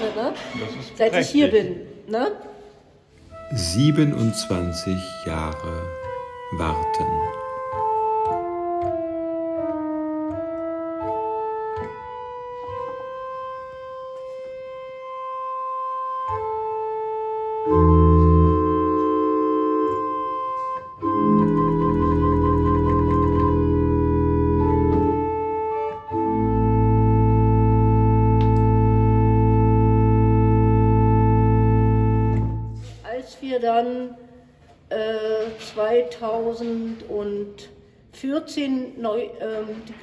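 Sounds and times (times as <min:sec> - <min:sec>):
pipe organ playing: 0:03.2 - 0:33.0.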